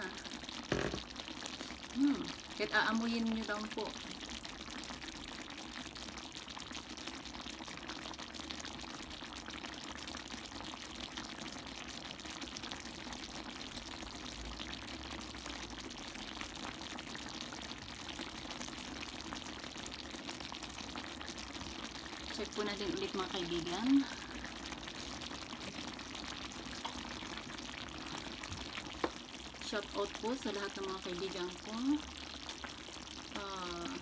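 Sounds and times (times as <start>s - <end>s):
stew bubbling with fine crackle: 0.0s - 34.0s.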